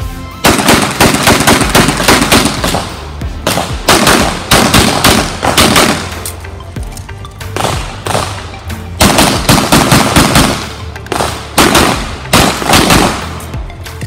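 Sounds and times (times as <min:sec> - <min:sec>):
rapid pistol fire: 0:00.4 - 0:06.2, 0:07.6 - 0:08.4, 0:09.0 - 0:13.4.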